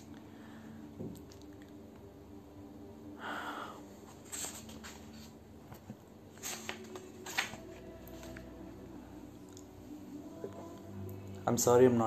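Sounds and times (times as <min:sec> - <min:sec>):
faint steady hum: 0:00.0 - 0:12.0
paper rustling: 0:04.1 - 0:08.5.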